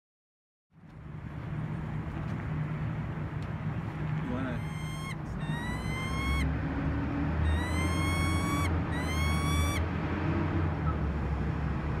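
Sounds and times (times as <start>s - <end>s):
falcon calling: 4.2s - 6.5s, 7.4s - 9.8s.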